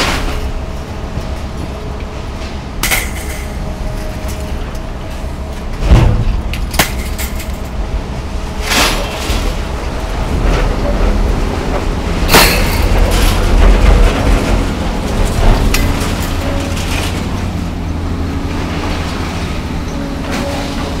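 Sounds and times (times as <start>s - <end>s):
diesel engine rumbling: 0.0s - 21.0s
metal clanks and crashes: 2.8s - 7.8s, 8.6s - 9.7s, 12.2s - 17.7s
heavy thud: 5.8s - 6.5s.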